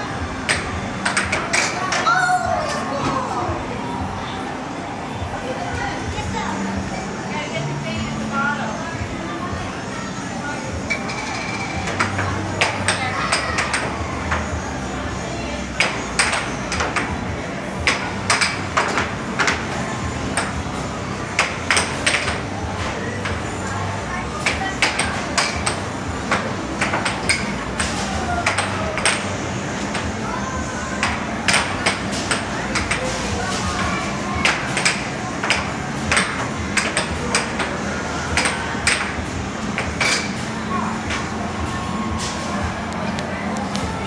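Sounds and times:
steady background noise: 0:00.0 - 0:44.0
steady low hum: 0:00.0 - 0:44.0
air hockey puck clacking: 0:00.4 - 0:02.1, 0:10.9 - 0:14.4, 0:15.8 - 0:17.2, 0:17.8 - 0:20.6, 0:21.4 - 0:22.4, 0:24.4 - 0:29.3, 0:31.0 - 0:33.1, 0:33.8 - 0:40.4.

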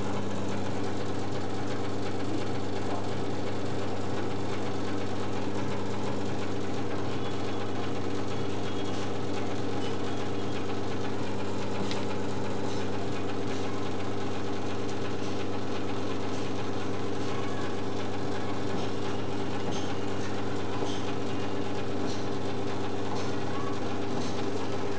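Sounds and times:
steady low hum: 0:00.0 - 0:24.9.

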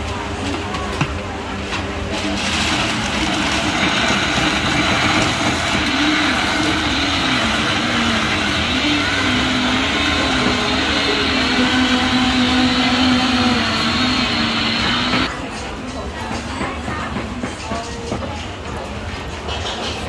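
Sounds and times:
blender running: 0:02.4 - 0:15.3.

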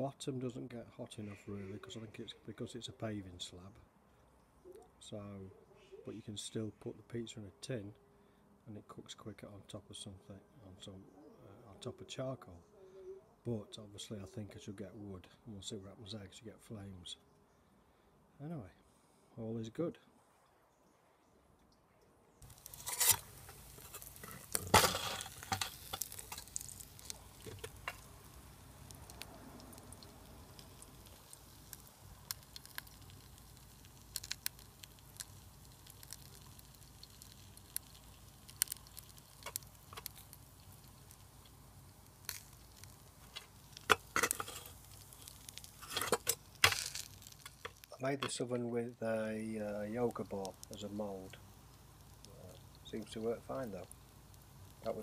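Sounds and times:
charcoal crackling and ticking: 0:22.4 - 0:55.0
faint sizzle: 0:22.4 - 0:55.0.

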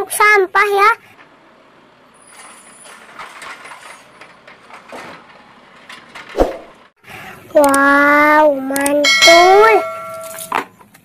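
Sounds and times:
garbage truck engine: 0:00.0 - 0:08.5
metal clank: 0:02.0 - 0:06.9, 0:09.1 - 0:10.6.

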